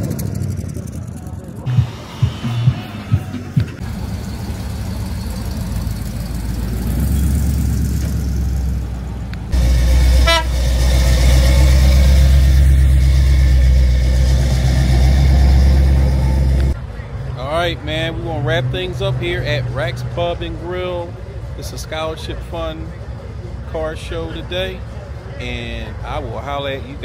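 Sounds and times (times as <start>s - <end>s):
car engine running: 0.0s - 26.3s
car horn toot: 10.1s - 10.9s.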